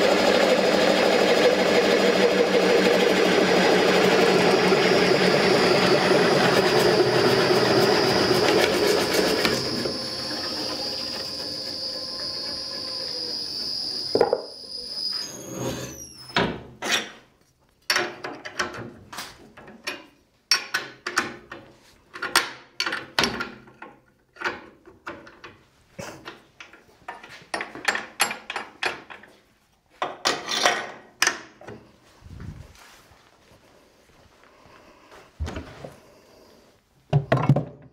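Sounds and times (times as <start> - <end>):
electric motor running: 0.0 - 16.0
metal and wood knocks and clatters: 37.2 - 37.9.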